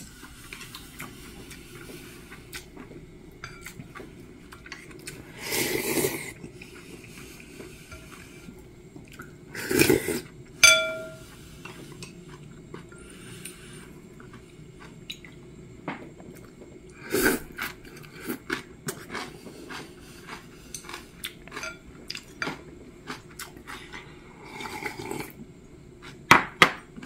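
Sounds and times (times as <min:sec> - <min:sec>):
man chewing with wet mouth noises: 0:00.1 - 0:10.5, 0:11.2 - 0:26.3
chopsticks clattering on a bowl: 0:10.6 - 0:11.2, 0:20.8 - 0:22.6.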